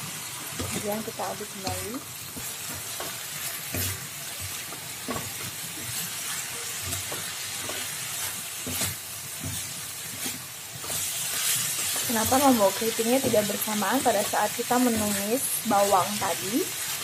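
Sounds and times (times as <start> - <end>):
frying sizzle: 0.0 - 17.0
spatula scraping a wok: 1.7 - 17.0.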